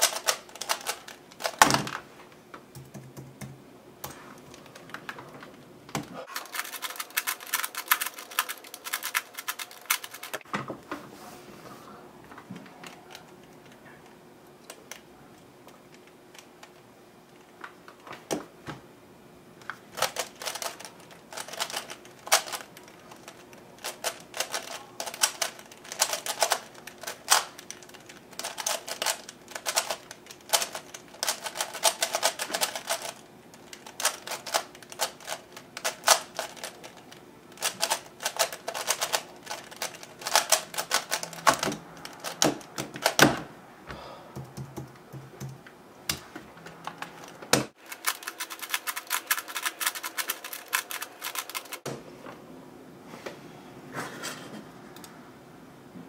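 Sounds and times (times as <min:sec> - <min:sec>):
puzzle cube plastic clicking: 0:00.0 - 0:01.7, 0:06.3 - 0:10.4, 0:20.0 - 0:43.2.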